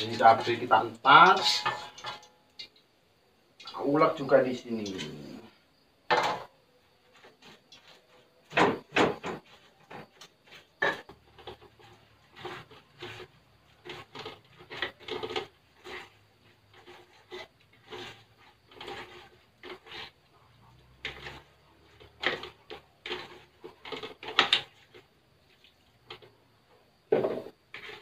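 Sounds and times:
hands squishing grated coconut: 9.2 - 26.2.

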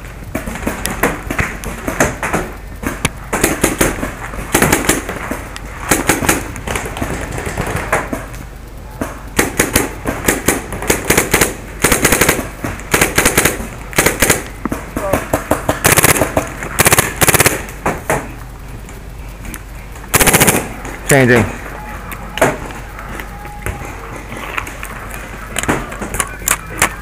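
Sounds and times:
paintball marker rapid pops: 9.4 - 18.3, 20.1 - 20.8.

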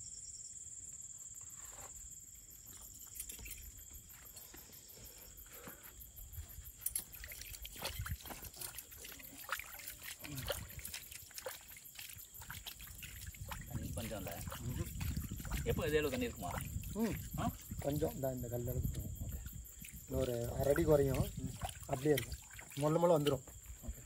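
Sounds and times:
crickets chirping: 0.0 - 24.0
hands splashing water: 6.8 - 23.5.

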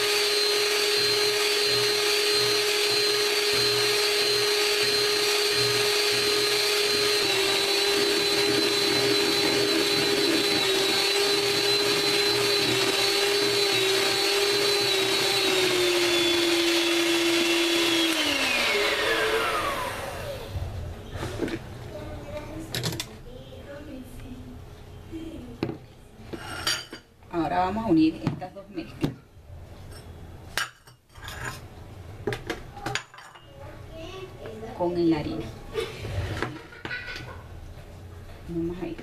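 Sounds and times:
electric hand mixer whining: 0.0 - 20.7.

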